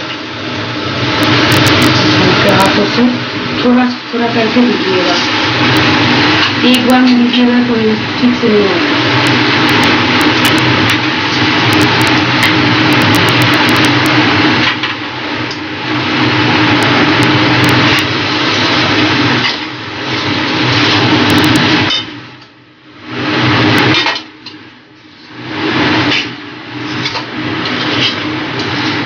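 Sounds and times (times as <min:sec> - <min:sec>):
frying hiss: 0:00.0 - 0:29.0
spatula scraping in a steel pan: 0:26.0 - 0:29.0.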